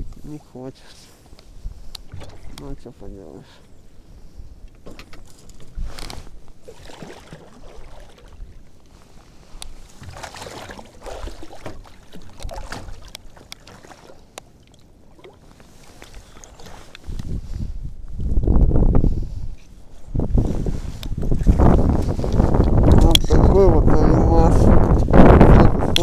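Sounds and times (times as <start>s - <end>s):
water splashing against a boat: 1.2s - 3.5s, 4.3s - 17.8s.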